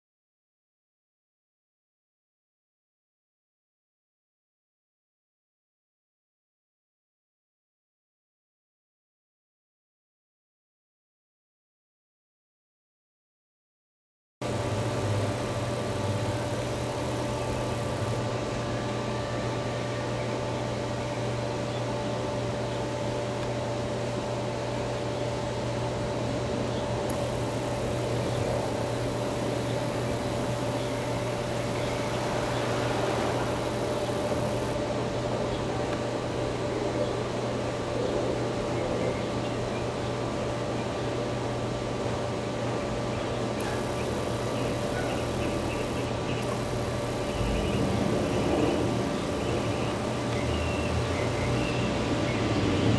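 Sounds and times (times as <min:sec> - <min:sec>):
steady hiss: 0:14.4 - 0:19.2, 0:27.1 - 0:35.7, 0:43.6 - 0:52.0
machine hum: 0:14.4 - 0:52.9.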